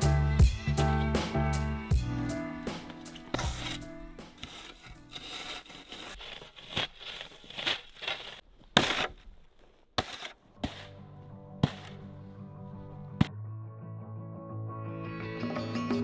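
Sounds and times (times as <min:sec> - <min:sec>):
snow shovel scraping snow: 0:03.1 - 0:09.4, 0:10.0 - 0:11.0, 0:11.6 - 0:12.0.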